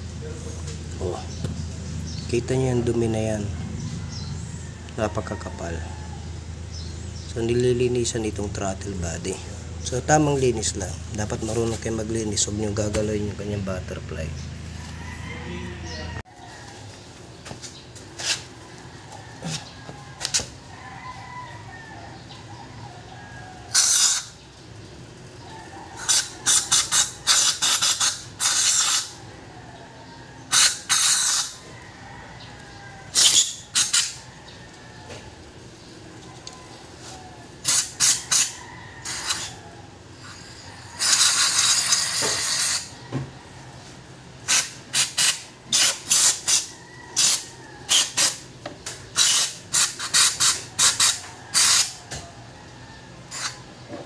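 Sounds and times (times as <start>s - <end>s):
aerosol spray bursts: 23.7s - 24.3s, 26.1s - 29.2s, 30.5s - 31.6s, 37.6s - 39.5s, 41.0s - 42.9s, 44.5s - 48.4s, 49.2s - 52.0s.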